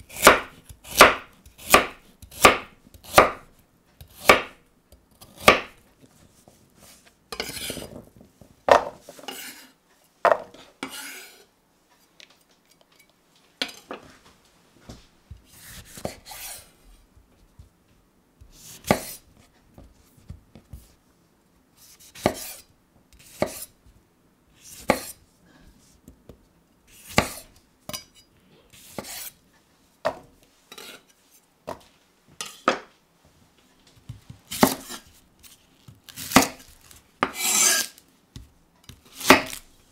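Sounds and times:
vegetables rustling and scraping: 6.0s - 12.1s, 33.8s - 38.1s.

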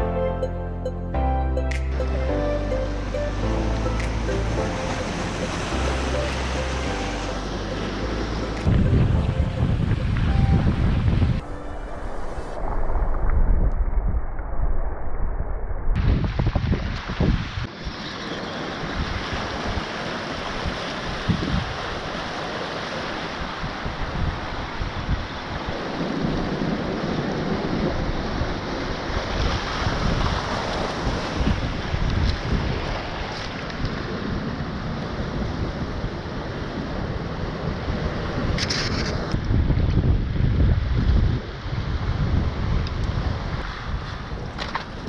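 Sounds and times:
wind buffeting microphone: 8.5s - 18.0s, 18.7s - 22.1s, 23.4s - 45.0s
surf rushing over rocks: 18.5s - 39.4s.

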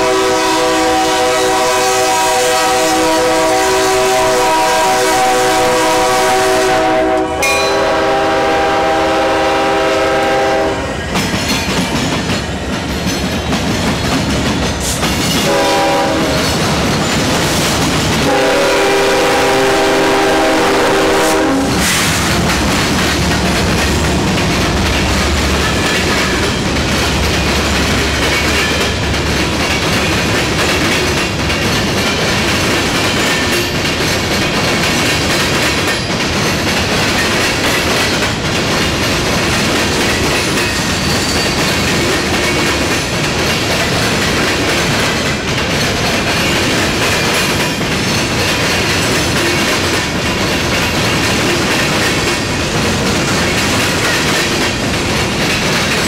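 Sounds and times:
locomotive air horn blasts: 0.0s - 11.0s, 15.4s - 16.5s, 18.2s - 22.0s
rail cars clattering over crossing: 0.0s - 56.0s
locomotive engine rumble: 15.4s - 33.0s.

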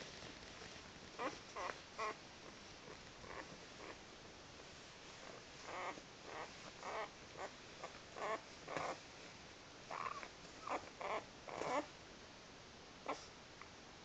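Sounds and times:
puppies whimpering and grunting: 1.2s - 2.2s, 2.8s - 4.0s, 5.2s - 9.0s, 9.9s - 11.9s.

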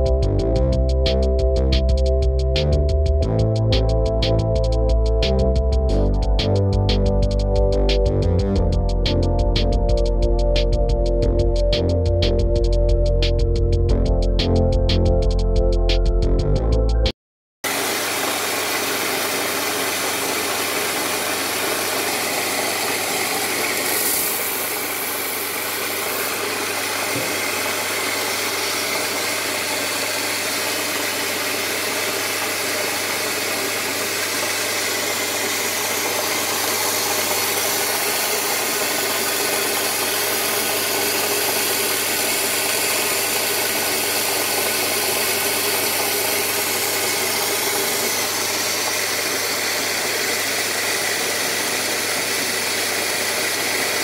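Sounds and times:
electric coffee grinder: 17.6s - 54.0s.

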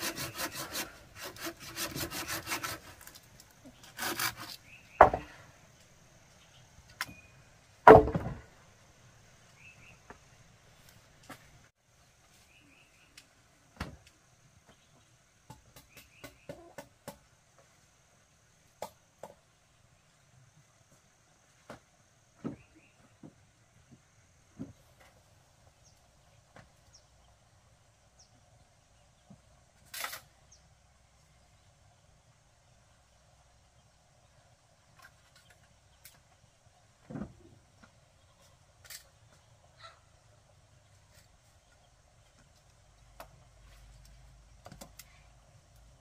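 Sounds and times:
hand-sawing bamboo: 0.0s - 5.2s
faint insect hum: 0.0s - 46.0s
wood knocking on wood: 5.0s - 5.3s, 7.9s - 8.4s.

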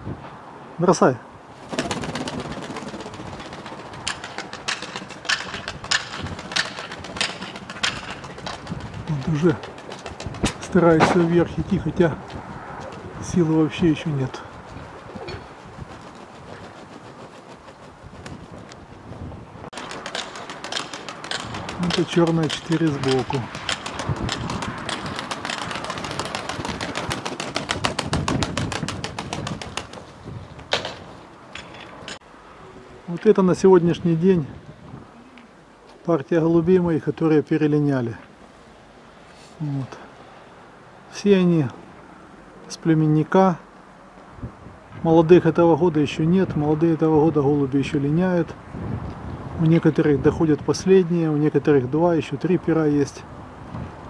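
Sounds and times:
pigeon wings flapping: 1.6s - 10.7s, 14.4s - 19.1s, 19.7s - 31.1s
sharp clicks: 19.8s - 26.5s.

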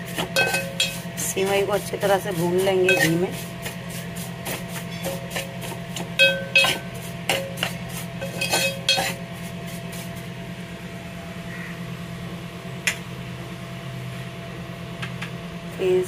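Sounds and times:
steady low hum: 0.0s - 16.0s
metal spoon scraping metal pot: 0.4s - 1.1s, 2.2s - 3.8s, 4.5s - 9.6s.

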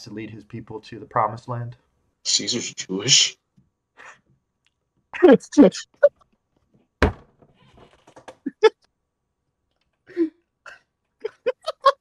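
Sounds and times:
stifled laughs: 11.3s - 12.0s.

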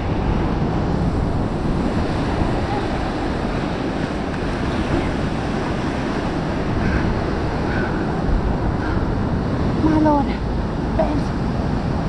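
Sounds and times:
ocean surf breaking: 0.0s - 12.0s
wind buffeting microphone: 0.0s - 12.0s.

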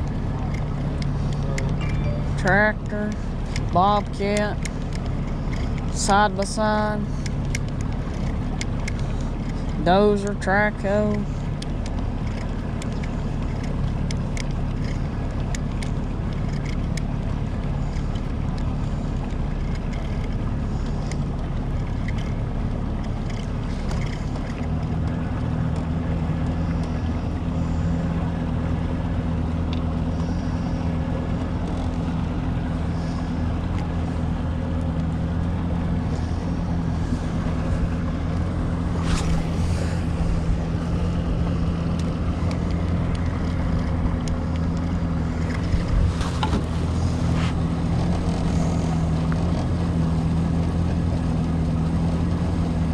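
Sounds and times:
boat motor running: 0.0s - 52.9s
wind noise on microphone: 36.7s - 44.6s.

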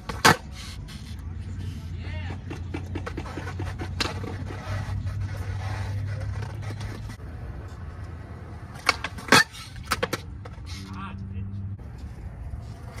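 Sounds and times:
skateboard wheels rolling on concrete: 0.0s - 13.0s
skateboard clacks: 1.9s - 10.6s.

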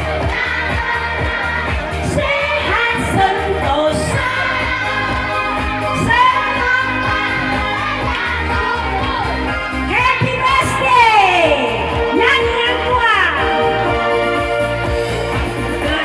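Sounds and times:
people singing: 0.0s - 11.2s
backing music with bass line: 0.0s - 16.0s.

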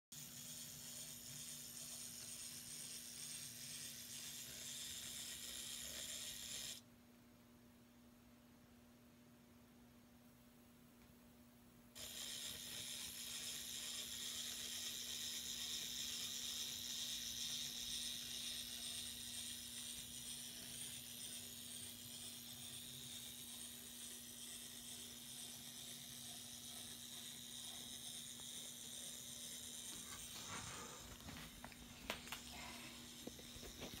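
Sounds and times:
tiny motor high-pitched whir: 0.1s - 6.8s, 12.0s - 34.0s
faint hum and hiss: 0.2s - 34.0s.

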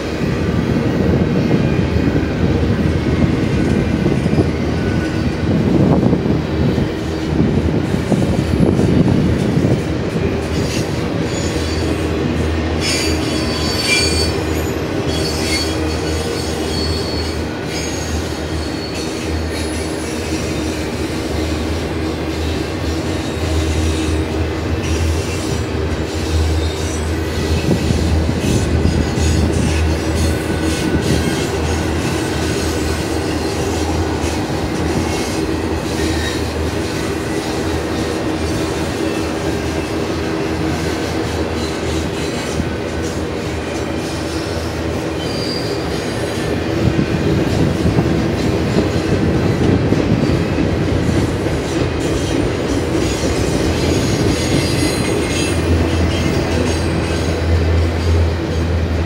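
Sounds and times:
train wheels rumbling on rails: 0.0s - 59.0s
faint wheel squeals: 45.2s - 46.0s.

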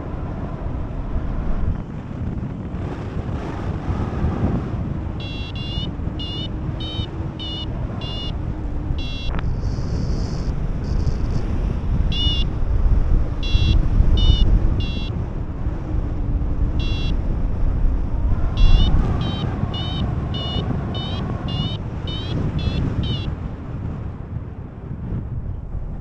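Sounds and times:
wind buffeting microphone: 0.0s - 26.0s
short rising beeps: 5.2s - 11.2s, 12.1s - 12.5s, 13.4s - 15.1s, 16.8s - 17.2s, 18.5s - 23.3s.

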